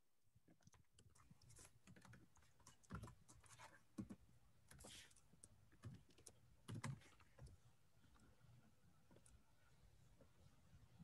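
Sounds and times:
typing on computer keyboard: 5.7s - 7.5s.

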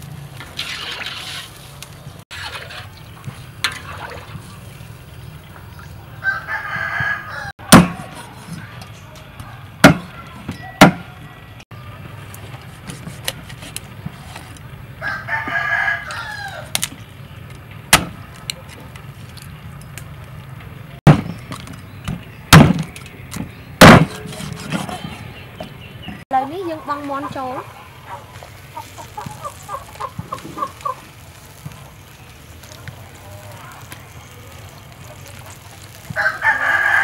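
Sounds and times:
rooster crowing: 6.2s - 7.7s, 15.0s - 16.7s, 36.2s - 37.0s.

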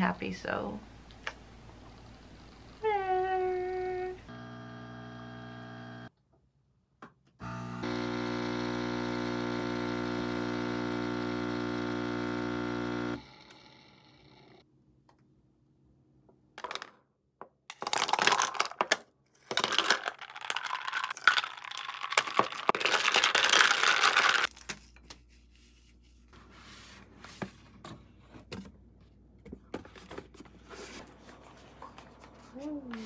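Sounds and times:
packaging crinkling and tearing: 17.8s - 24.8s.

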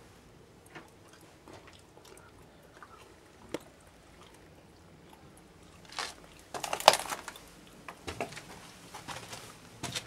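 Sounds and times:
footsteps crunching on gritty stairs: 8.0s - 10.0s.

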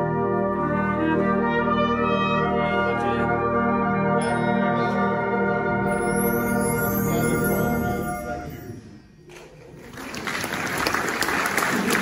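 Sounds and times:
brass band playing chords: 0.0s - 9.0s.

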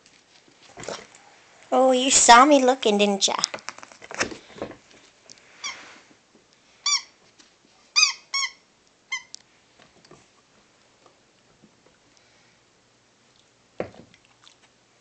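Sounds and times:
squeaky dog toy squeaking: 6.8s - 7.1s, 8.0s - 9.3s.

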